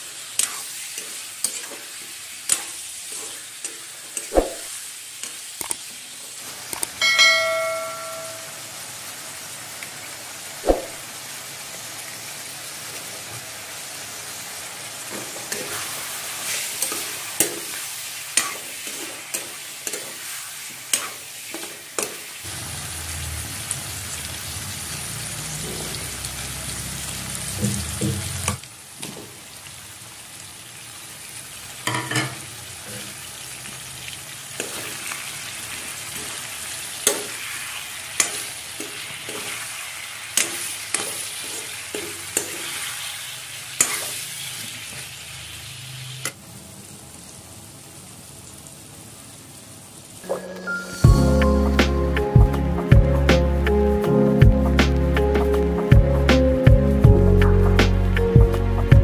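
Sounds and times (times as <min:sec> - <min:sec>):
food sizzling in a pan: 0:00.0 - 0:52.9.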